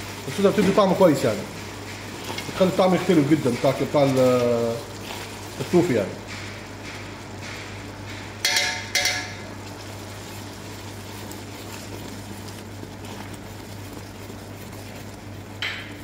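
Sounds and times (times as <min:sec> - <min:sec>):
toffee bubbling and hissing: 0:00.0 - 0:16.0
spatula clinking on pot: 0:08.4 - 0:09.5.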